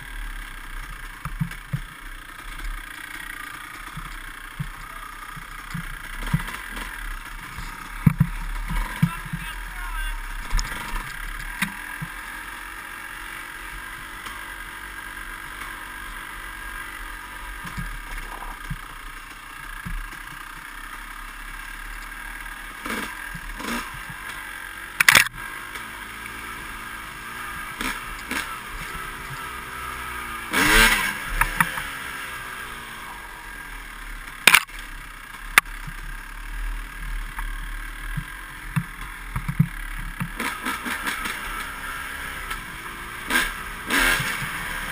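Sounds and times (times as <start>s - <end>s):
dirt bike engine running: 0.0s - 44.9s
bike clattering over bumps: 0.8s - 9.5s, 37.3s - 44.9s.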